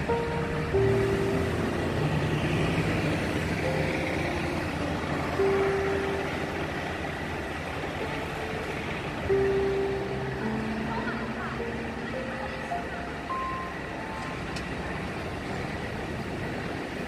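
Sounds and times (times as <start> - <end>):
buses and truck engine rumble: 0.0 - 17.0.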